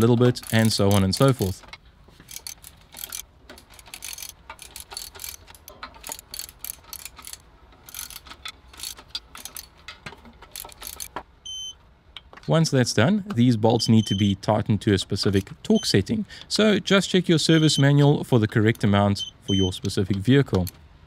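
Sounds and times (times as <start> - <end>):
hand ratchet clicking: 0.0 - 1.6, 2.2 - 9.8, 10.5 - 11.2.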